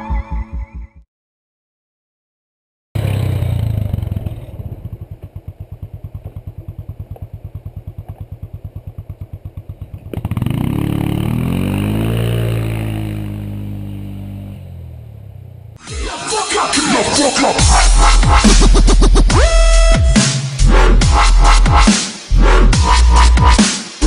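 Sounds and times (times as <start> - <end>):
atv engine idling and revving: 3.0 - 15.8.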